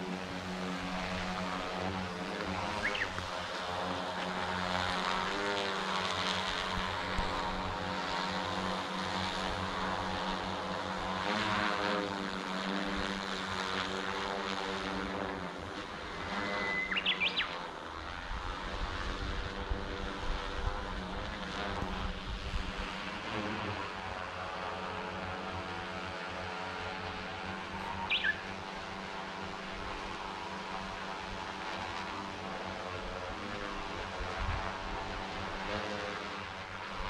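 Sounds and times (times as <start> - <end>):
drone propellers humming: 0.0 - 37.0
bird call: 2.8 - 3.1, 16.5 - 17.6, 28.0 - 28.5
wind rumble on microphone: 18.2 - 23.0, 34.1 - 35.2.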